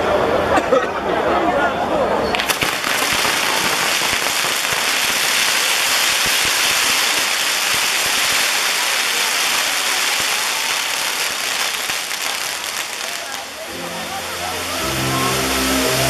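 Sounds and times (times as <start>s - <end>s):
firework pops: 2.3s - 13.6s
firework fountain hissing: 2.3s - 16.0s.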